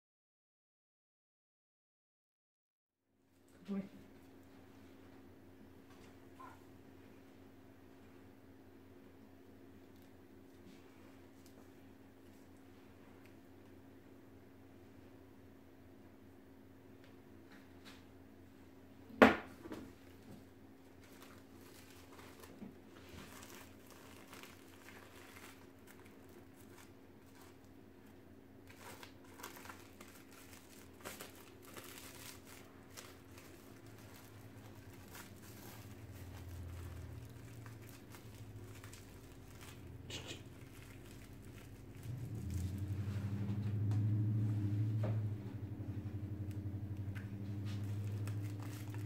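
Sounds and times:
fabric wrap crinkling and rustling: 0:20.0 - 0:44.9, 0:46.4 - 0:49.0.

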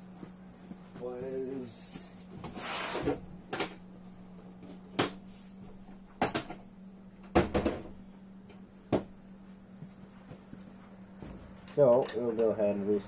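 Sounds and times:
hand tools clinking and knocking: 0:11.6 - 0:12.5.

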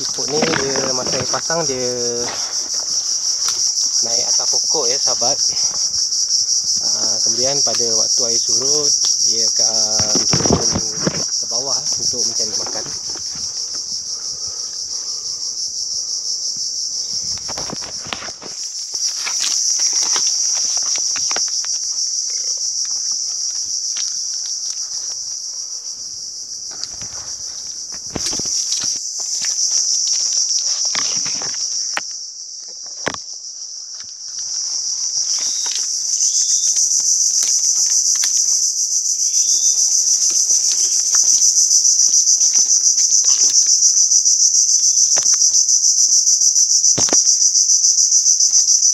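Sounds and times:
footsteps in mud: 0:00.0 - 0:06.9, 0:09.0 - 0:14.9, 0:17.4 - 0:21.9
branches brushing: 0:00.0 - 0:32.0, 0:33.8 - 0:44.1
high-pitched insect chorus: 0:00.0 - 0:48.9.

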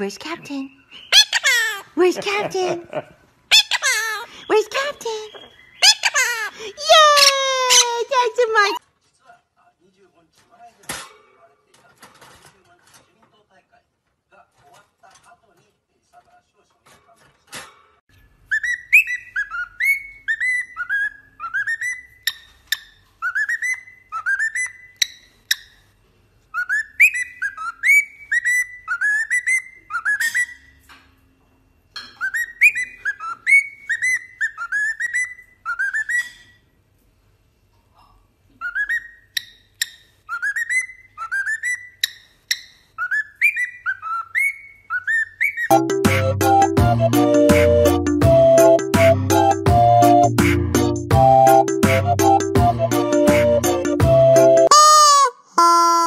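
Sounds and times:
cockatiel whistling a tune: 0:18.5 - 0:22.3, 0:23.2 - 0:25.1, 0:26.6 - 0:30.6, 0:32.2 - 0:36.4, 0:38.6 - 0:39.2, 0:40.3 - 0:42.2, 0:43.0 - 0:45.8.

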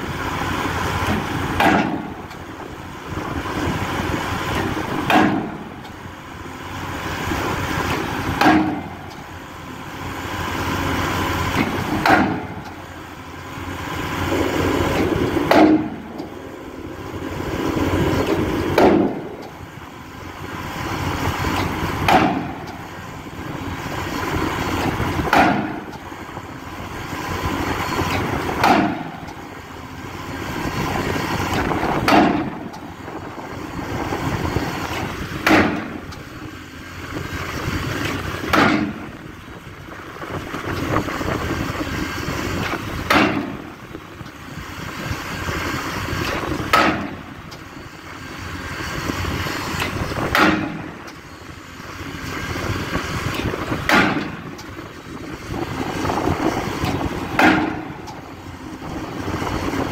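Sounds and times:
machine noise: 0:00.0 - 0:59.9
impact hammer striking steel pile: 0:15.5 - 0:16.0, 0:38.5 - 0:39.1, 0:46.7 - 0:47.2, 0:49.8 - 0:50.9, 0:57.3 - 0:57.9.

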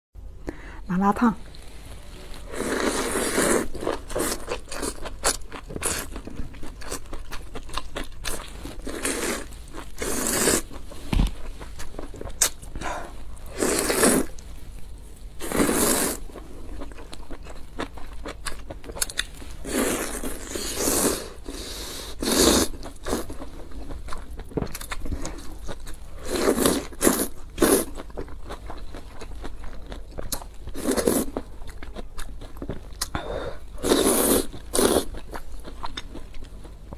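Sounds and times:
wet chewing: 0:02.6 - 0:10.9.

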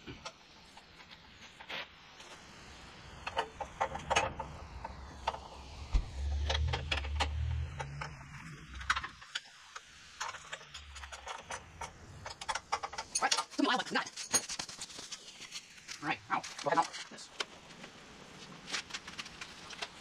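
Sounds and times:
low rumble: 0:04.6 - 0:09.2.

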